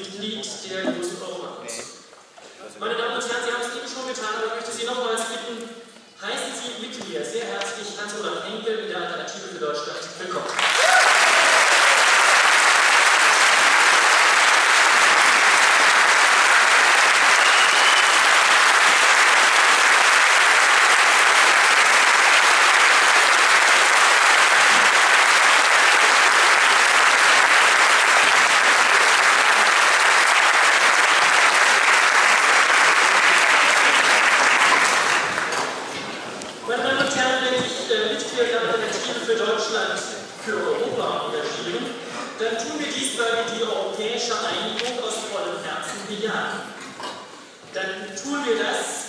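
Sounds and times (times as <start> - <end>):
large audience applauding: 10.5 - 36.0.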